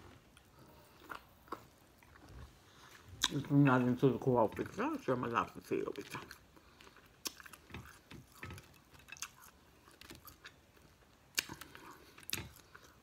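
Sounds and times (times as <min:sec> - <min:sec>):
chewing and lip-smacking: 0:06.0 - 0:13.0.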